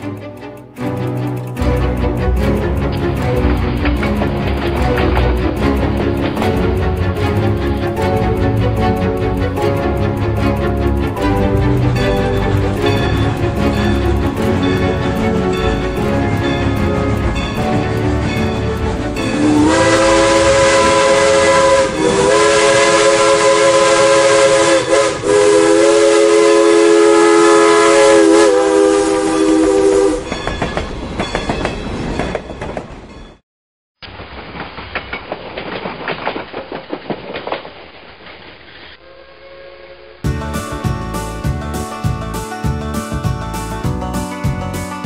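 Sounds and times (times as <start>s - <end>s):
moving train clatter: 0.0s - 33.4s, 34.0s - 38.9s
steam locomotive whistle: 19.2s - 30.3s.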